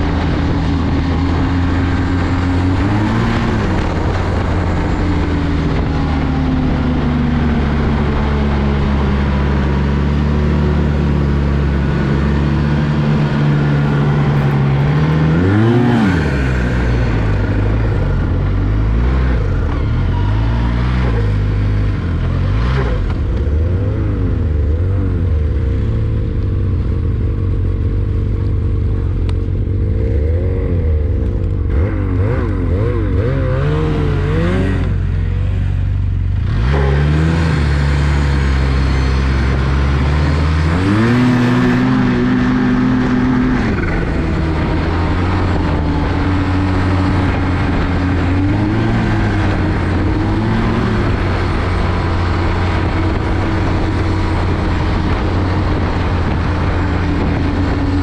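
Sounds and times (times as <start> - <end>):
snowmobile engine idling and revving: 0.0 - 58.0.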